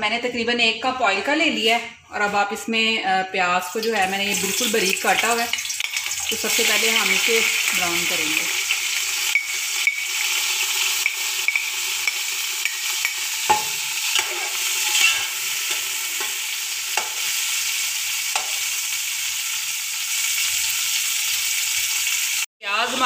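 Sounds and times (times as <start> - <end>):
onions sizzling in oil: 3.7 - 23.0
metal spatula scraping pot: 8.8 - 17.4.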